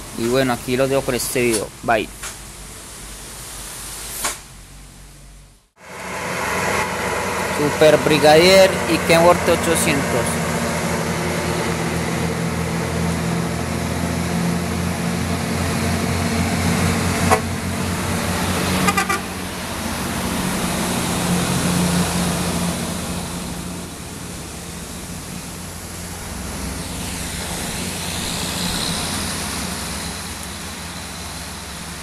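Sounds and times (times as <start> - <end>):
truck diesel engines: 0.0 - 2.8, 4.7 - 32.0
truck horn toots: 17.2 - 17.6, 18.8 - 19.4.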